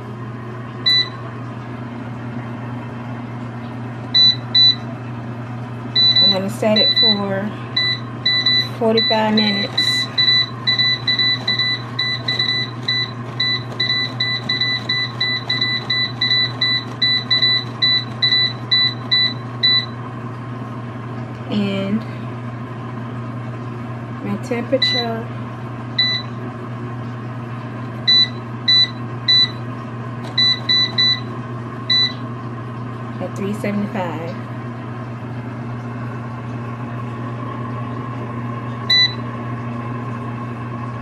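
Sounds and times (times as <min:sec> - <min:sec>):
steady low hum: 0:00.0 - 0:41.0
air fryer short high beeps: 0:00.8 - 0:01.2, 0:04.1 - 0:04.9, 0:06.0 - 0:20.0, 0:24.7 - 0:25.2, 0:26.0 - 0:26.4, 0:28.0 - 0:32.3, 0:38.8 - 0:39.4.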